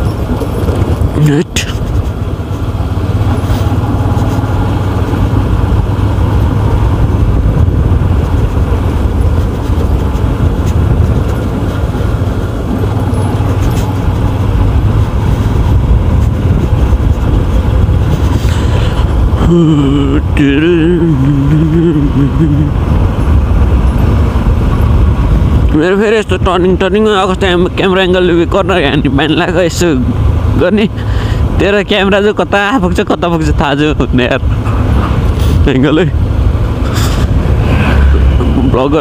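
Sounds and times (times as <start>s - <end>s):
motorcycle engine running: 0.0s - 25.7s
wind rushing over microphone: 0.0s - 32.1s, 32.8s - 39.0s.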